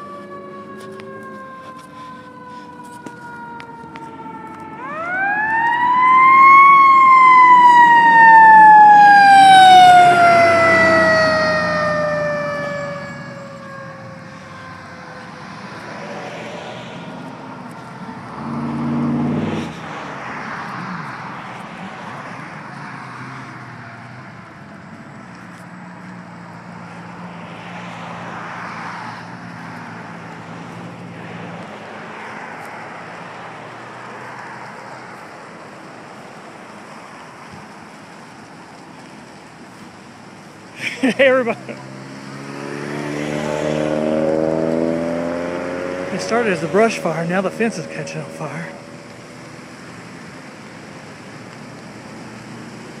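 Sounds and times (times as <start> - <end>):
low engine hum: 32.9 - 53.0.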